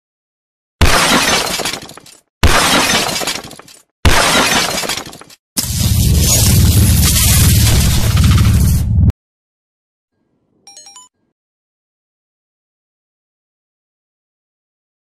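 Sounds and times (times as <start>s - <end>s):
crashing shattering hits: 0.8s - 8.6s
loud low rumble: 5.6s - 9.1s.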